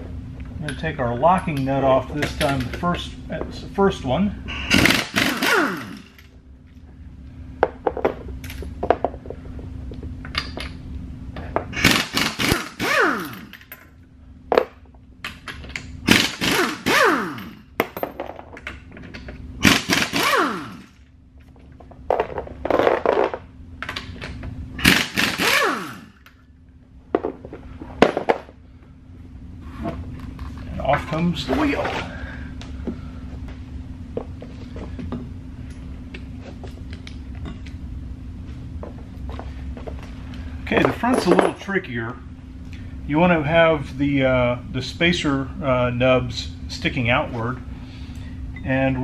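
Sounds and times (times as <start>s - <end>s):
pneumatic impact wrench whine: 4.5s - 6.3s, 11.7s - 13.7s, 16.0s - 17.7s, 19.6s - 21.0s, 24.8s - 26.4s.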